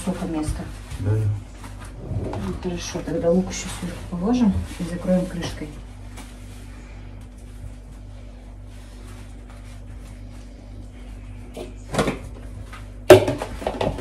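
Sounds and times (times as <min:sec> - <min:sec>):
faint steady hum: 0:00.0 - 0:13.3.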